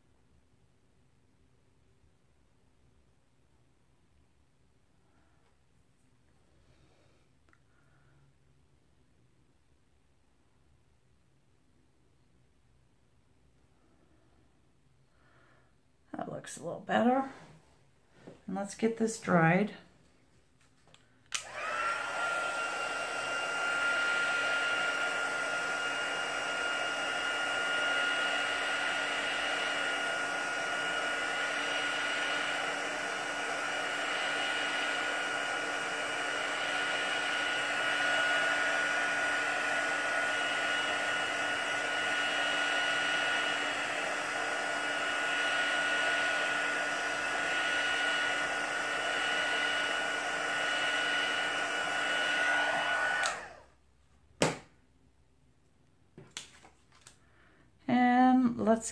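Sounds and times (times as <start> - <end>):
handheld dryer blowing with whine: 21.3 - 53.8.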